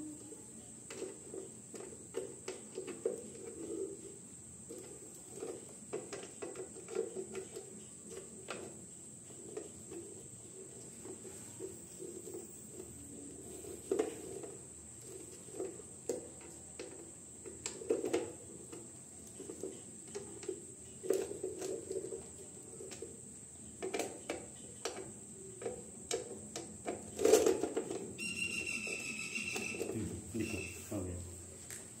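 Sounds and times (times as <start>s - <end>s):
faint high whine: 28.2s - 32.0s.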